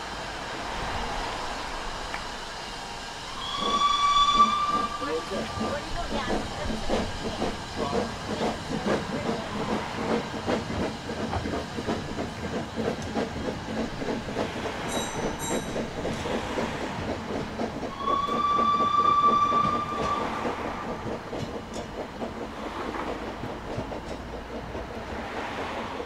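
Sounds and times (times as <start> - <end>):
steam locomotive exhaust beats: 0.0 - 26.0
steam whistle: 3.3 - 6.0, 17.9 - 20.5.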